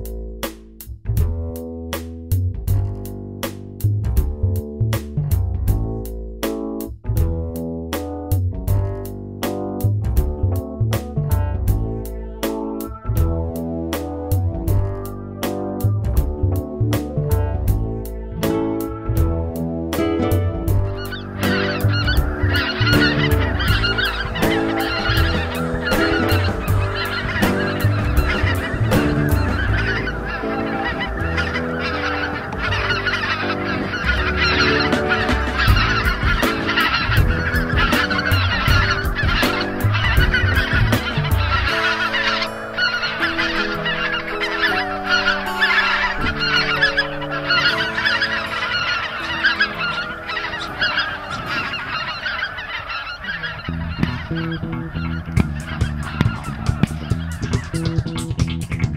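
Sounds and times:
geese honking: 0:17.3 - 0:58.9.

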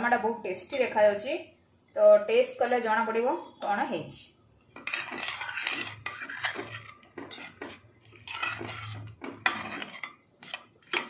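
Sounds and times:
spoon scraping metal pot: 0:00.5 - 0:01.1, 0:04.7 - 0:11.0.

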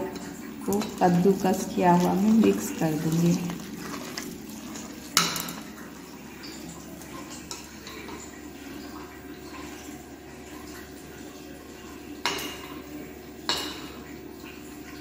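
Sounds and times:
hand squelching wet batter: 0:01.0 - 0:07.3.

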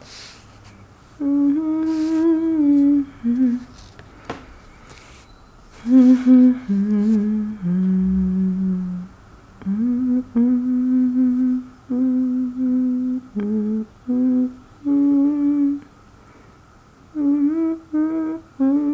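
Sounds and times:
woman humming: 0:01.2 - 0:03.8, 0:05.8 - 0:15.9, 0:17.1 - 0:18.9.

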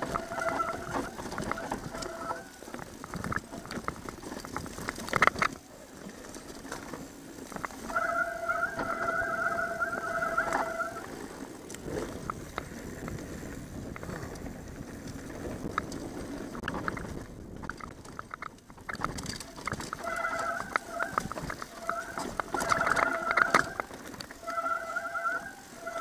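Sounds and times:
chain and frame rattling: 0:00.0 - 0:05.6, 0:15.8 - 0:25.2
bike tyres rumbling on dirt: 0:00.0 - 0:26.0.

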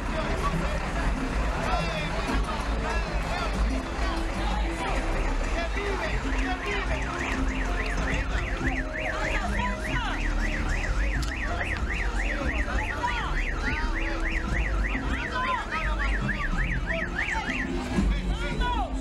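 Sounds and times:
warbling electronic siren: 0:03.9 - 0:18.2.

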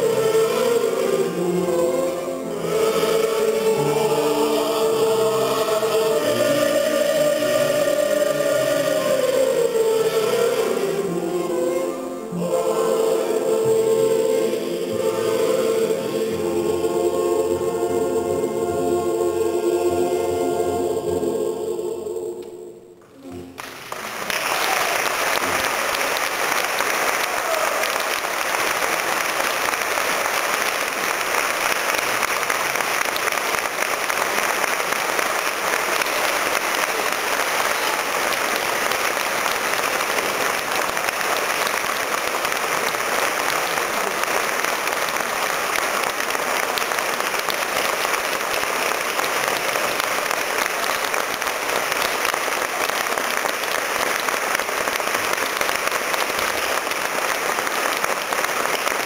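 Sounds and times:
choir and strings holding chord: 0:00.0 - 0:23.6
audience applause: 0:23.6 - 0:59.0.

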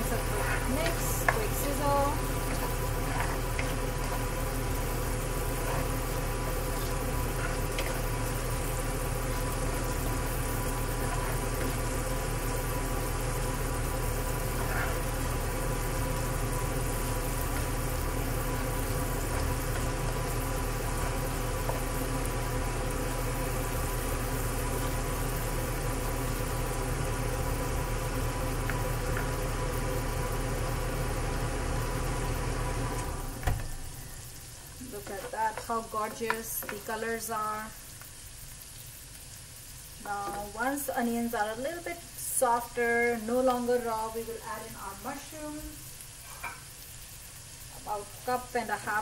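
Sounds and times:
faint spatula scrapes: 0:00.0 - 0:01.7, 0:02.5 - 0:04.2, 0:05.6 - 0:06.0, 0:14.4 - 0:15.3
onions frying in a pan: 0:00.0 - 0:49.0
range hood fan humming: 0:00.0 - 0:49.0.

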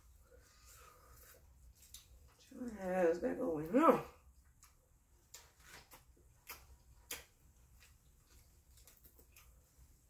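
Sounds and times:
chewing and eating smacks: 0:04.3 - 0:10.0.

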